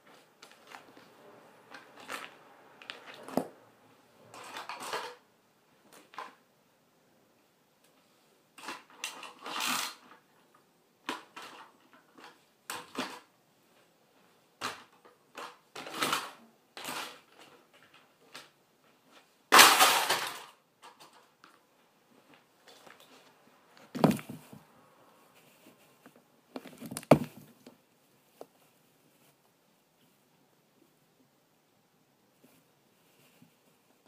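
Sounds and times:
high heels crushing toy cars: 0:19.5 - 0:21.3, 0:23.8 - 0:24.6, 0:26.5 - 0:27.7.

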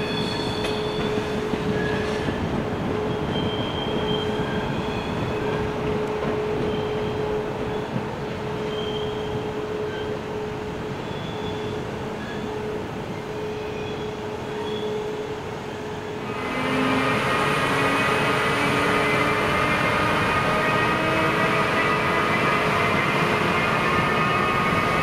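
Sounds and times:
electric locomotive whining: 0:00.0 - 0:25.0
train humming: 0:00.0 - 0:25.0.

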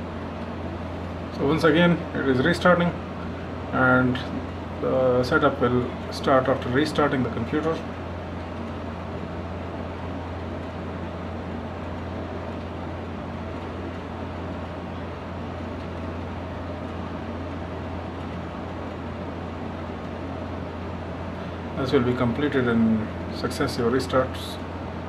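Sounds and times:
cooling fans humming: 0:00.0 - 0:25.0.

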